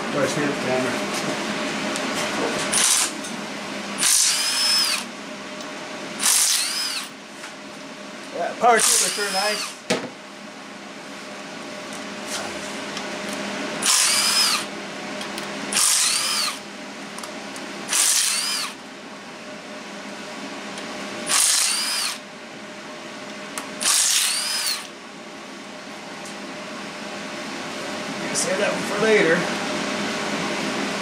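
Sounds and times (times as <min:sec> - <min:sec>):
impact wrench whining: 0:02.7 - 0:03.2, 0:04.0 - 0:05.1, 0:06.2 - 0:07.2, 0:08.8 - 0:09.8, 0:13.8 - 0:14.7, 0:15.7 - 0:16.6, 0:17.9 - 0:18.8, 0:21.3 - 0:22.2, 0:23.8 - 0:24.9.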